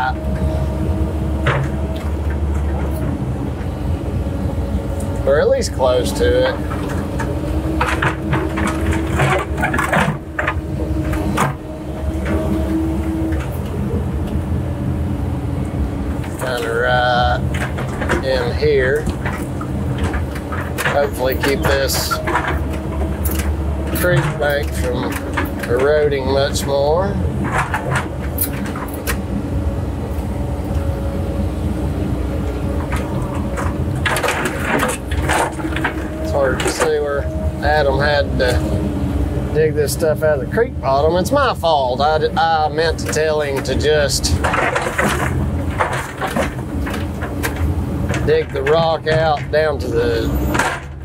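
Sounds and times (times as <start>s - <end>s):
excavator engine and hydraulics: 0.0s - 51.0s
steady whine: 0.0s - 51.0s.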